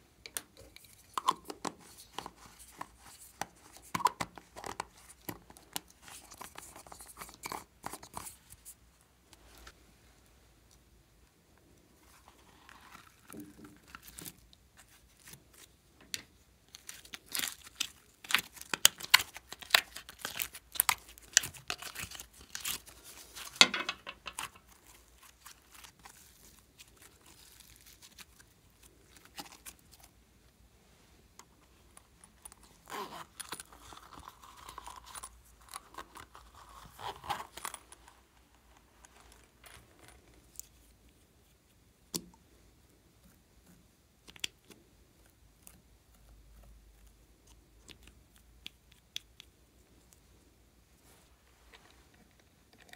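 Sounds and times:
plastic container handling: 17.8s - 24.8s.

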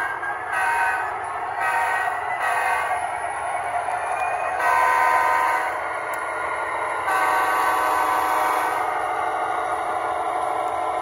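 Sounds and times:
model train running: 0.0s - 11.0s
model train air horn: 0.5s - 3.0s, 4.6s - 5.8s, 7.1s - 8.9s.

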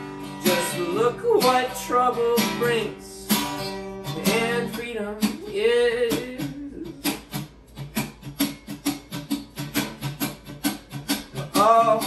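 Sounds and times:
person singing: 0.0s - 3.4s, 4.1s - 7.2s, 11.3s - 12.0s
acoustic guitar strumming: 0.0s - 12.0s.

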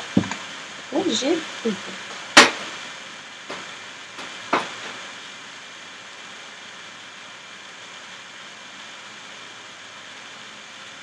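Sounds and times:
steady hiss: 0.0s - 11.0s
kitchenware knocking on a surface: 3.5s - 5.0s.

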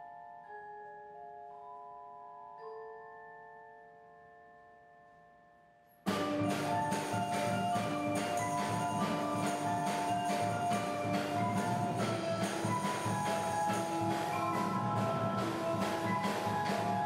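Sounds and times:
mallet keyboard chords: 0.0s - 17.0s
drums: 6.1s - 17.0s.

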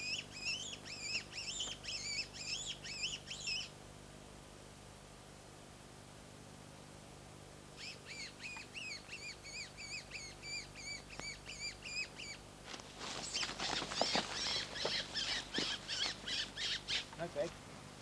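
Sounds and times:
high-pitched squealing calls: 13.2s - 17.2s.

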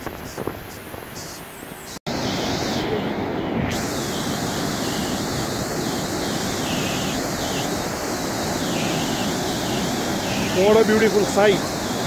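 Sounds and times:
water pouring down a spillway: 3.7s - 12.0s.

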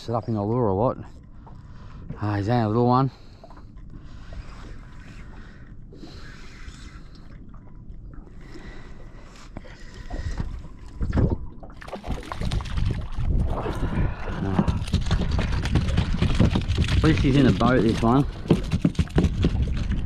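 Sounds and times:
fish splashing at surface: 11.8s - 13.9s.

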